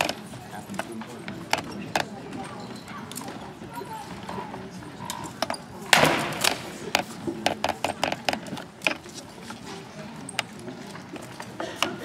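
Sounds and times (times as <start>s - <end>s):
rattan swords striking shields: 5.9s - 6.8s.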